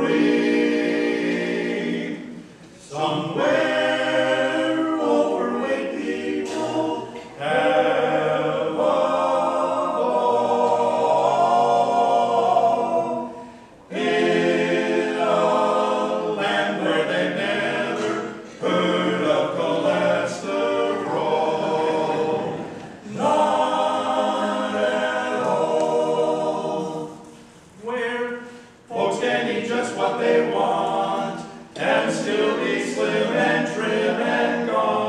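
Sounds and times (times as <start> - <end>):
men singing a cappella harmony: 0.0 - 27.2, 27.8 - 35.0
singers breathing: 13.3 - 13.9, 28.4 - 28.9.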